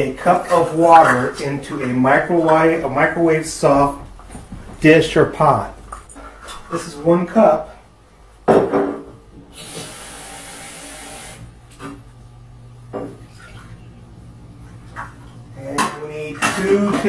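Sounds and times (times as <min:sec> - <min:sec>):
water running from tap: 0:09.5 - 0:11.5
dishes clattering: 0:15.0 - 0:17.0.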